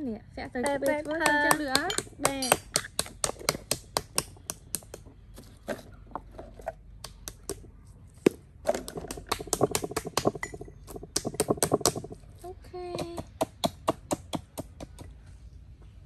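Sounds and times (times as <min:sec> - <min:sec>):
utensils tapping on a tabletop: 0:01.2 - 0:05.1, 0:08.7 - 0:12.2.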